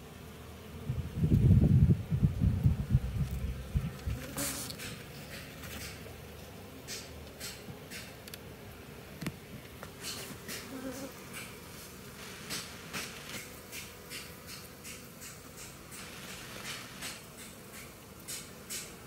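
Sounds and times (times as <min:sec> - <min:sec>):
bees buzzing: 0:00.0 - 0:19.0
short scratchy noises: 0:04.0 - 0:06.0.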